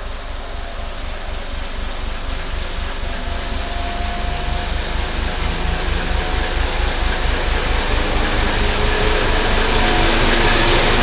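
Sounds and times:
diesel locomotive engine throbbing: 0.0 - 11.0.

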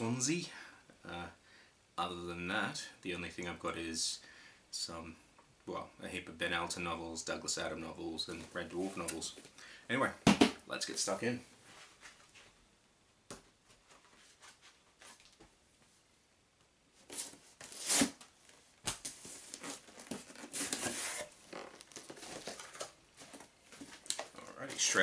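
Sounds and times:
cardboard rustling: 17.0 - 25.0
cardboard box tearing: 17.1 - 18.2.

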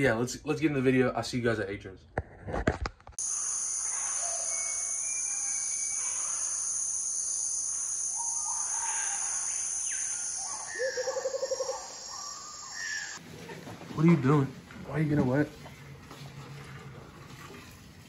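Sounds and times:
high-pitched hiss: 3.2 - 13.2.

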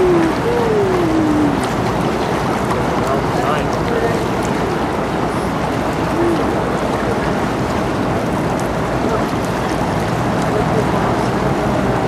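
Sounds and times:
ship rumble and water wash: 0.0 - 12.0.

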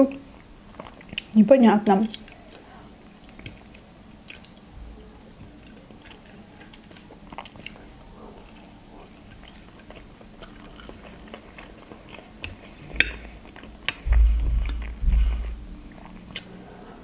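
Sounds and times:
close chewing and mouth sounds: 0.0 - 17.0.

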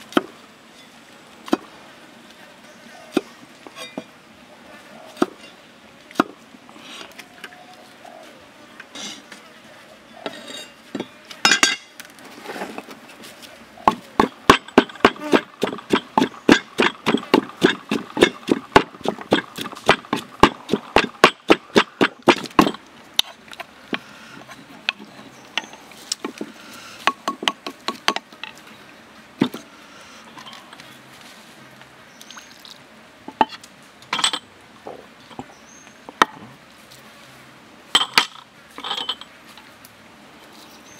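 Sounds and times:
pestle pounding in wooden mortar: 13.8 - 22.8, 27.1 - 28.3.

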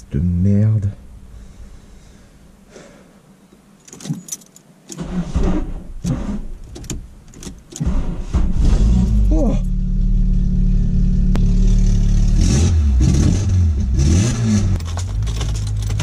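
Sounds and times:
ignition keys rattling and clicking: 3.8 - 5.1, 6.6 - 7.9, 14.8 - 16.0
engine starter cranking: 4.9 - 8.7
car engine running: 5.3 - 16.0.

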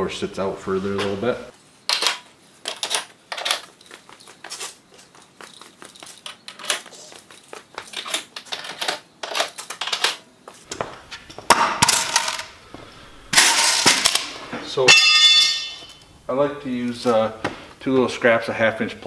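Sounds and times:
small parts clicking and rustling: 1.9 - 10.8
footsteps on concrete: 3.6 - 8.0, 10.4 - 11.5, 12.7 - 13.0.

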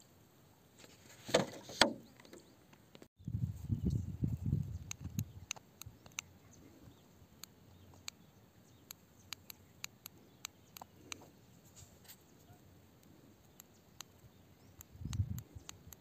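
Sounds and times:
faint sharp clicks: 4.6 - 6.4, 7.4 - 11.3, 13.0 - 16.0.

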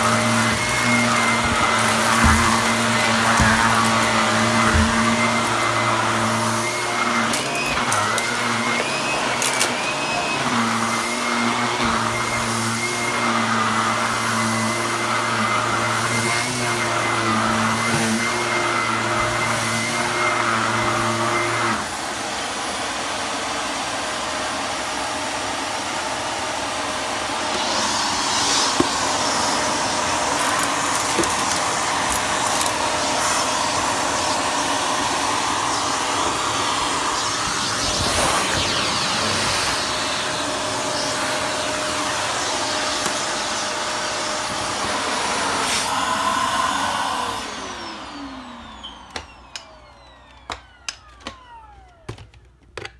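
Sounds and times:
vacuum cleaner running: 0.0 - 52.9.

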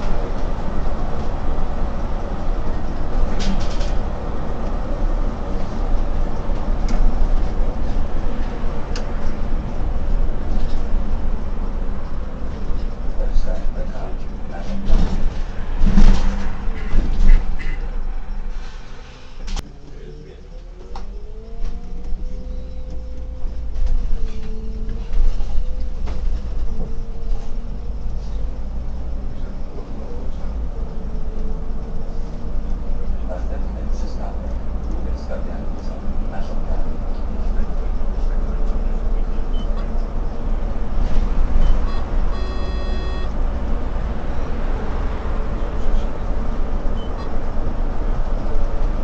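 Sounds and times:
bus engine and road rumble: 0.0 - 49.0
electronic beep: 41.6 - 43.3.

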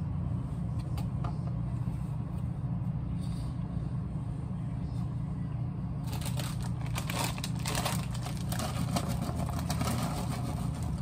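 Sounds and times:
steady low hum: 0.0 - 11.0
plastic snack bag crinkling: 6.1 - 11.0.

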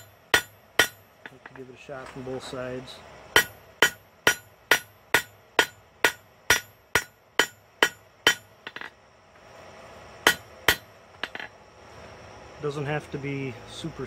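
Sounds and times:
hammer ringing on anvil: 0.0 - 1.7, 3.4 - 8.9, 10.3 - 11.5.

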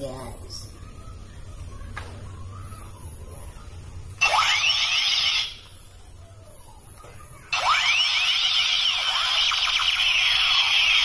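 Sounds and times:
toy gun electronic firing tones: 4.2 - 5.8, 7.4 - 11.0.

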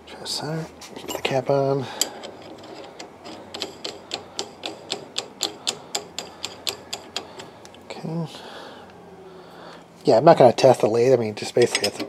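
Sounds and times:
rapid mechanical clicking: 2.0 - 7.8.

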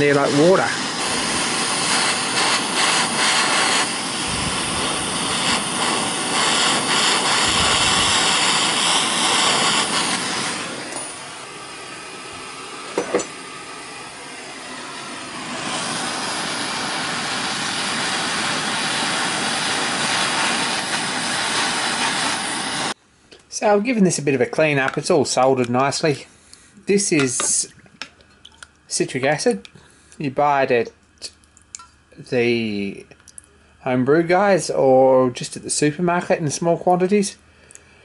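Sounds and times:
gas torch flame hissing: 0.0 - 23.0.

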